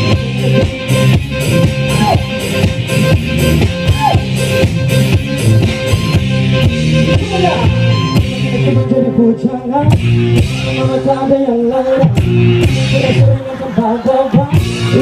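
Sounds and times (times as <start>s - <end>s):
live pop-rock band: 0.0s - 15.0s.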